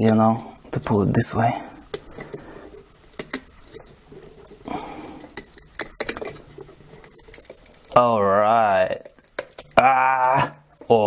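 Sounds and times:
rubber rubbing: 0.0s - 10.8s
small clicks and snaps: 1.9s - 10.7s.

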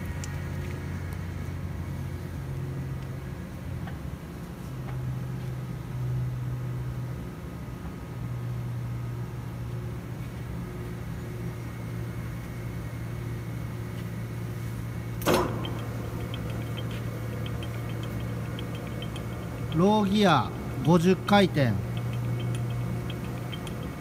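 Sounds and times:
lathe motor hum: 15.2s - 24.0s
faint rapid ticking: 15.5s - 24.0s.

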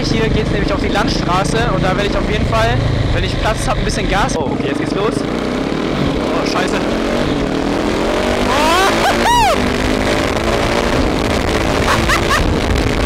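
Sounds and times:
motorcycle engine accelerating: 0.0s - 13.0s
person whooping: 8.5s - 9.7s, 11.9s - 12.4s.

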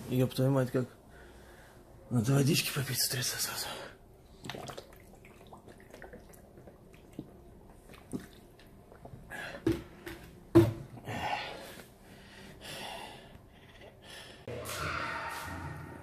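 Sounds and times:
man gulping water: 4.3s - 10.1s.

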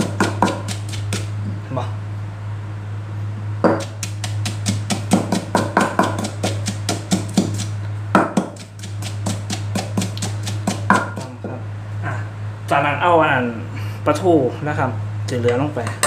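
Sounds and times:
pestle pounding in mortar: 0.0s - 1.4s, 3.6s - 11.6s
steady low hum: 0.0s - 16.0s.

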